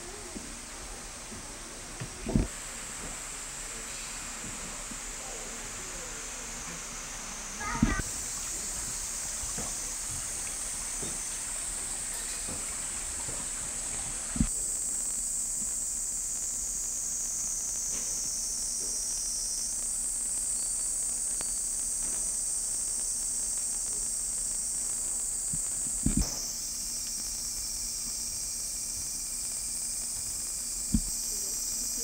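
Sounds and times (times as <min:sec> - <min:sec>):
insects droning: 0:00.0 - 0:32.0
dull knock: 0:30.9 - 0:31.1.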